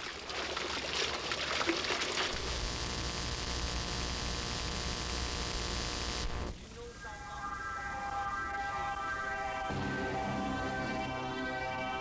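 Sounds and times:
tape hiss and electrical hum: 2.4s - 11.2s.

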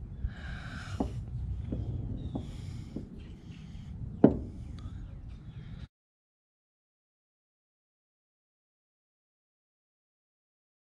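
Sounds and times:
metal bolt knocking on wood: 4.2s - 4.6s.

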